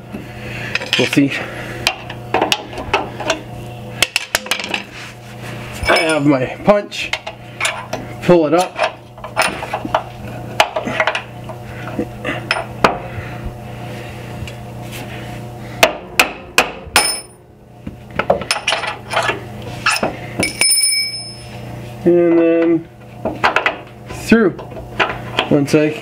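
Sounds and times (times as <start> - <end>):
hammer on metal punch: 15.8 - 17.3.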